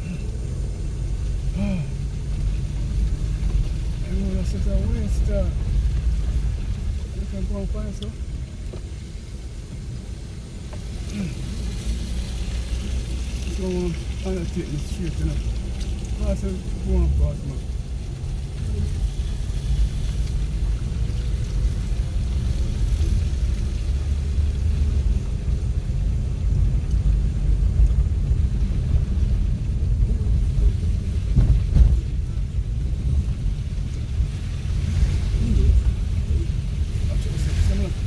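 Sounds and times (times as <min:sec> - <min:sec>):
car tyres rumbling on gravel road: 0:00.0 - 0:38.0
car bump: 0:31.3 - 0:32.2.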